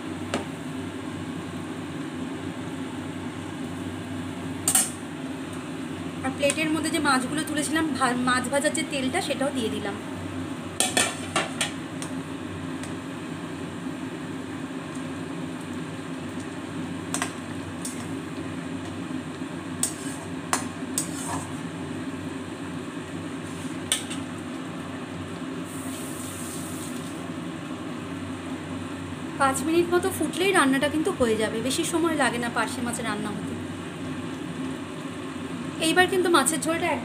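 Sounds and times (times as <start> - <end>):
curry bubbling in a wok: 10.6 - 28.7.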